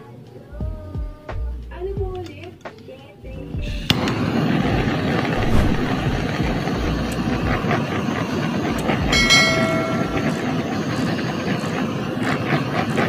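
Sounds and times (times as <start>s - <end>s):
flame jet roaring: 3.7s - 13.0s
high ringing tone: 9.1s - 11.0s.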